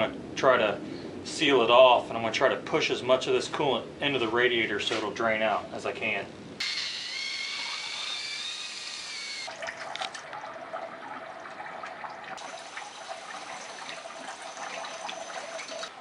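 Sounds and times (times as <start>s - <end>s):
coolant pouring into a bucket: 9.5s - 16.0s.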